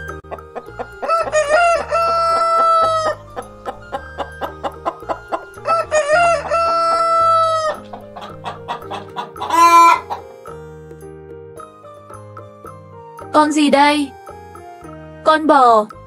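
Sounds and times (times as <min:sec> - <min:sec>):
rooster crowing: 0:01.0 - 0:03.4, 0:04.4 - 0:10.3.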